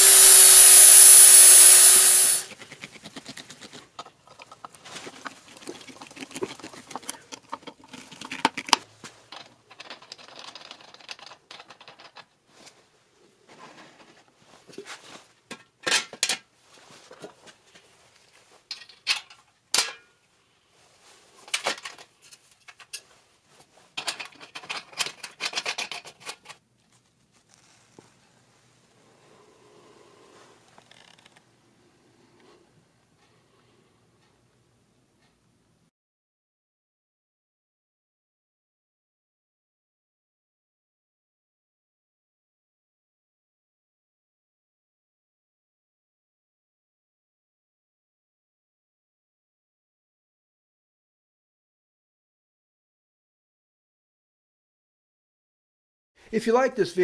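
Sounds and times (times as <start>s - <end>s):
angle grinder grinding metal: 0.0s - 2.5s
scrapes and clicks of pipe fittings: 2.5s - 12.8s, 13.5s - 20.1s, 21.3s - 28.4s, 30.6s - 31.5s.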